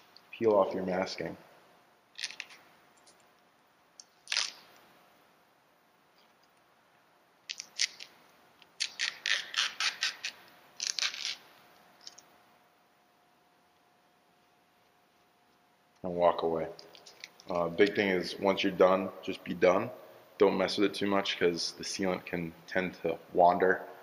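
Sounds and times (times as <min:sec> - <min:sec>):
masking tape peeling: 0:02.1 - 0:02.7, 0:04.0 - 0:04.8, 0:07.5 - 0:12.2.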